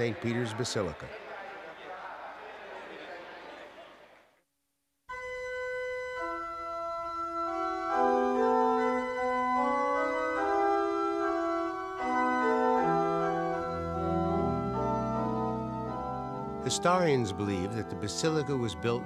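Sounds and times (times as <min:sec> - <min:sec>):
organ chords: 0:05.1 - 0:19.0
deep organ bass notes: 0:05.2 - 0:19.0.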